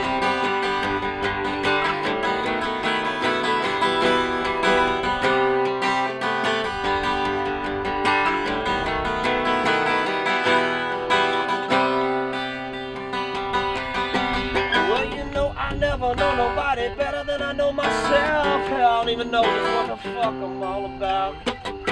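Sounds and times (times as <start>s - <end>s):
acoustic guitars strumming chords: 0.0s - 21.9s
wavering melody line: 16.9s - 21.9s.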